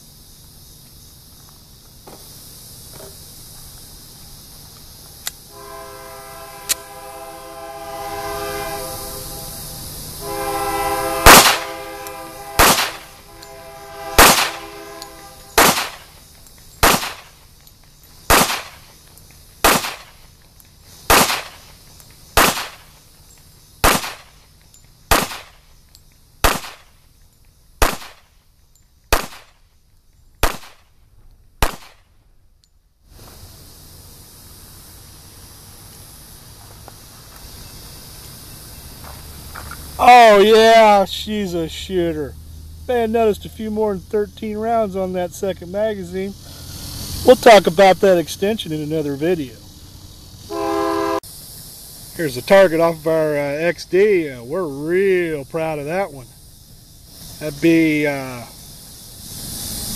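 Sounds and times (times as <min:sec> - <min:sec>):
distant horn blasts: 0:05.5 - 0:15.7, 0:50.5 - 0:51.2
pistol shots: 0:11.3 - 0:11.7, 0:12.6 - 0:13.1, 0:14.2 - 0:14.6, 0:15.5 - 0:16.1, 0:16.8 - 0:17.3, 0:18.3 - 0:18.8, 0:19.6 - 0:20.1, 0:21.1 - 0:21.6, 0:22.4 - 0:22.9, 0:23.8 - 0:24.3, 0:25.1 - 0:25.6, 0:26.4 - 0:26.9, 0:27.8 - 0:28.3, 0:29.1 - 0:29.6, 0:30.4 - 0:30.8, 0:31.6 - 0:32.1.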